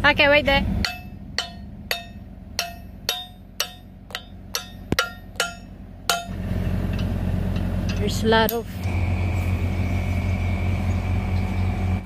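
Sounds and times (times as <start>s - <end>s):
hammer striking steel pin: 0.8s - 8.7s.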